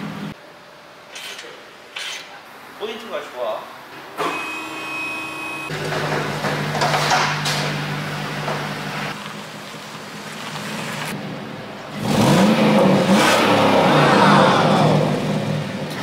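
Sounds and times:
engine exhaust idling and revving: 5.7s - 16.0s.

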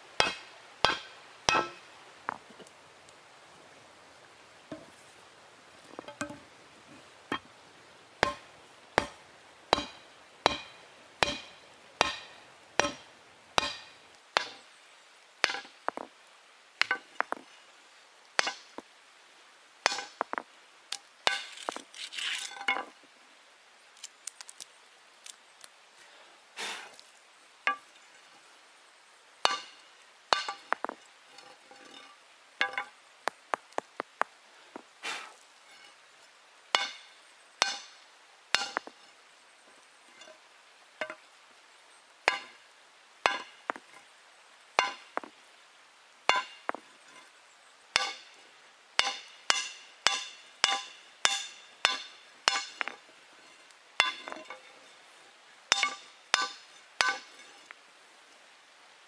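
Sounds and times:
stone hammering hot steel: 0.2s - 1.9s, 8.2s - 14.8s, 15.4s - 16.0s, 16.8s - 17.4s, 18.4s - 18.8s, 19.8s - 20.4s, 21.2s - 21.7s, 27.7s - 28.0s, 29.4s - 33.9s, 36.7s - 39.0s, 41.0s - 41.2s, 42.3s - 42.6s, 43.2s - 44.0s, 44.8s - 45.3s, 46.3s - 47.2s, 47.9s - 48.4s, 49.0s - 54.7s, 55.7s - 57.7s.

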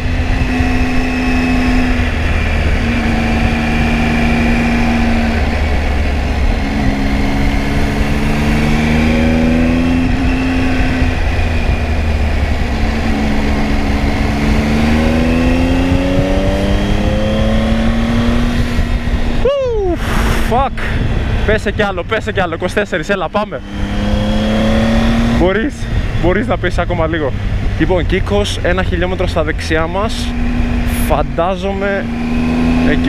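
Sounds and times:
motorcycle engine accelerating: 0.0s - 33.0s
wind rumble on microphone: 0.0s - 33.0s.

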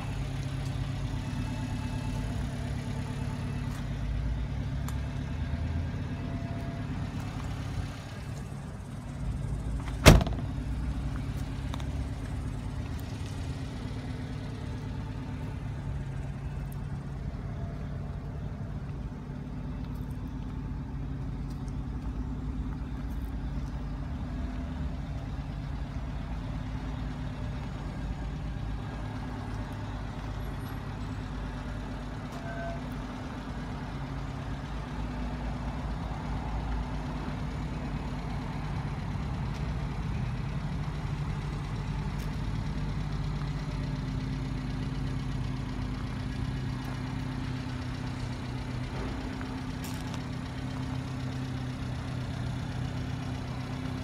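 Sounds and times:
truck engine idling: 0.0s - 54.0s
car door slamming: 9.8s - 10.7s.

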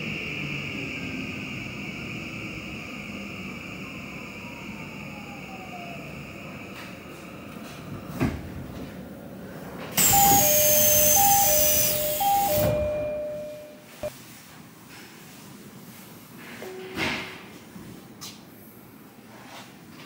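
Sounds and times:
air hiss: 10.0s - 12.8s
two-note door chime: 10.0s - 13.9s.

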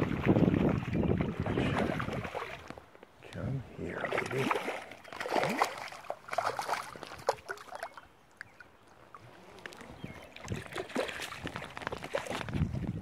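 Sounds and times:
fish thrashing in water: 0.0s - 2.8s, 4.0s - 8.0s, 9.7s - 13.0s
net moving through water: 4.0s - 7.9s, 9.1s - 12.8s.

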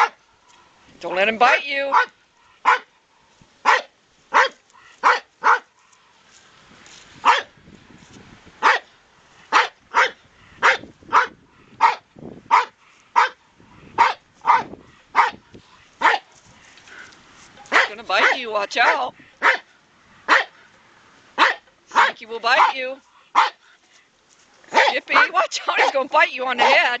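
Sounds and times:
dogs barking: 0.0s - 0.2s, 1.9s - 3.0s, 3.6s - 5.9s, 7.2s - 7.5s, 8.6s - 15.4s, 16.0s - 16.3s, 17.7s - 19.7s, 20.3s - 20.6s, 21.4s - 23.6s, 24.7s - 27.0s.

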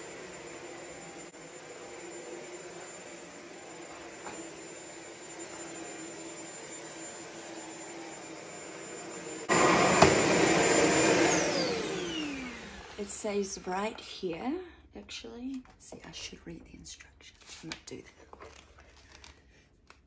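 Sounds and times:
vacuum cleaner motor running: 0.0s - 14.1s.

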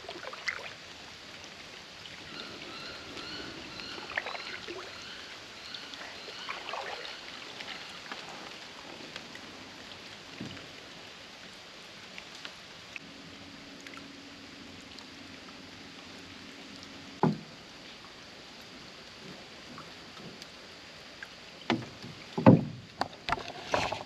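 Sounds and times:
steady quiet hiss: 0.0s - 24.0s
hollow knocks against boat hull: 17.2s - 17.5s, 21.7s - 23.1s.

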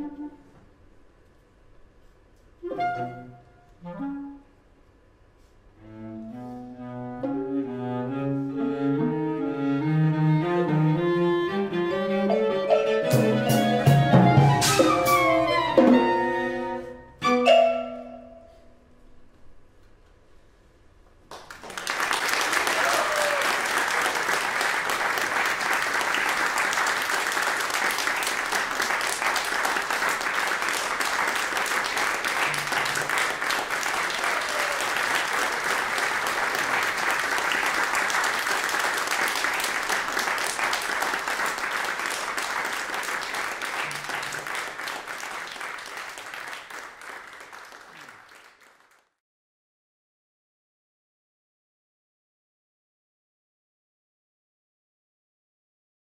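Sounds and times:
audience applauding: 21.3s - 49.2s.

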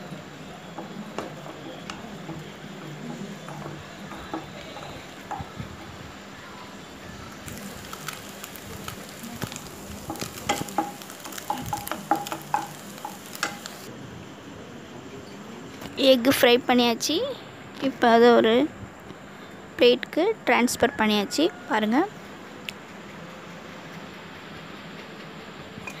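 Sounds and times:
spatula tapping and scraping pan: 0.0s - 6.1s, 7.4s - 13.9s
eggs sizzling in oil: 0.0s - 13.9s.

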